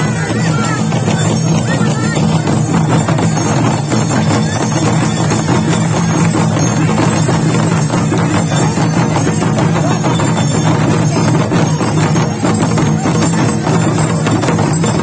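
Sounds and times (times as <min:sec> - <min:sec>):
large drums playing fast beat: 0:00.0 - 0:15.0.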